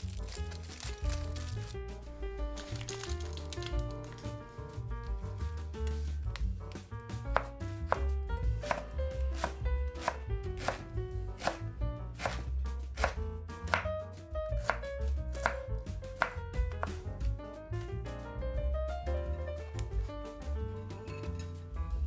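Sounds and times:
soft background music: 0:00.0 - 0:22.0
knife striking cutting board: 0:05.9 - 0:10.8, 0:11.4 - 0:11.6, 0:12.2 - 0:13.9, 0:16.2 - 0:17.0.

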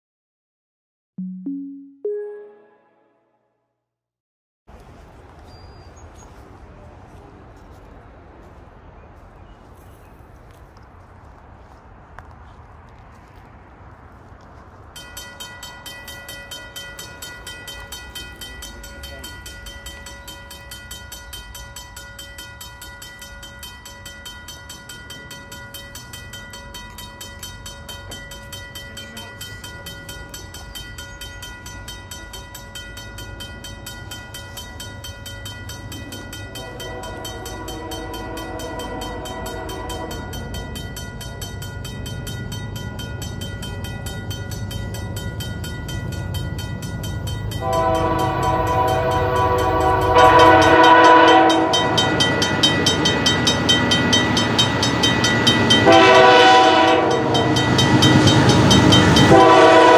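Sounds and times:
railroad crossing bell ringing: 0:14.9 - 0:59.9
train air horn blasts: 0:36.5 - 0:40.4, 0:47.6 - 0:52.2, 0:55.8 - 0:57.6, 0:59.3 - 0:59.9.

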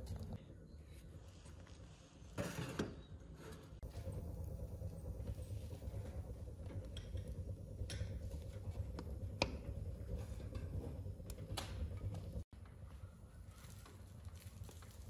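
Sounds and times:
wood fire rumbling: 0:00.0 - 0:00.5, 0:03.8 - 0:15.0
fire crackles and pops: 0:13.6 - 0:15.0.

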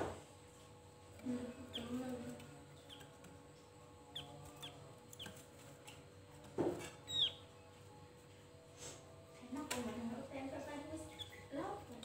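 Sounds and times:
bird chirps: 0:07.0 - 0:07.5, 0:11.1 - 0:11.6.

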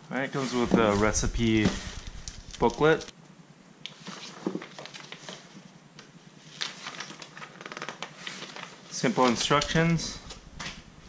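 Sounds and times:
plastic and paper rustling: 0:03.9 - 0:05.6, 0:06.4 - 0:10.8.

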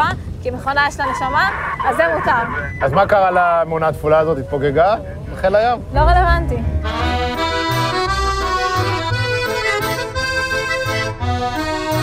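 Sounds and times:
background music with held chords: 0:05.9 - 0:12.0.

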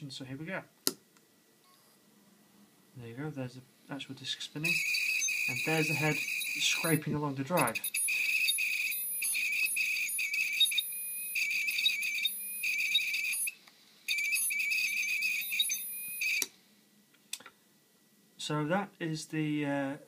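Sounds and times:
hard drive read head squealing: 0:04.7 - 0:07.0, 0:07.6 - 0:13.5.

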